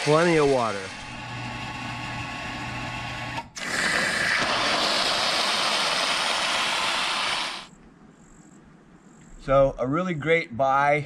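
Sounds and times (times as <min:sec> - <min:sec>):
water pump motor humming: 0:00.0 - 0:07.7
water jet rushing: 0:03.6 - 0:07.7.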